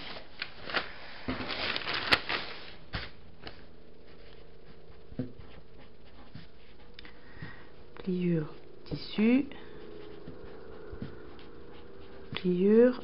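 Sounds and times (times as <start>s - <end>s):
paper rustling on table: 0.0s - 4.4s
pen strokes on paper: 4.1s - 6.9s, 8.4s - 13.0s.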